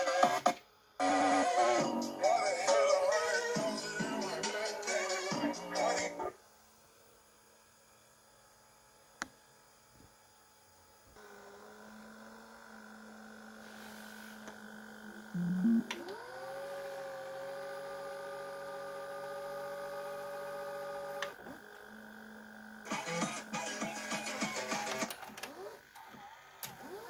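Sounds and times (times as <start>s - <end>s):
motor whine: 0.0s - 27.0s
low hum: 15.1s - 16.0s.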